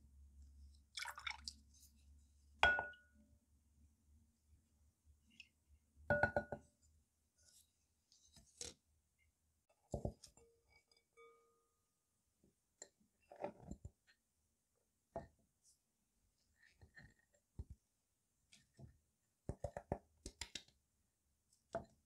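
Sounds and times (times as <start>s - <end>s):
glass bowl clinking and knocking: 2.6s - 3.2s, 6.1s - 6.6s.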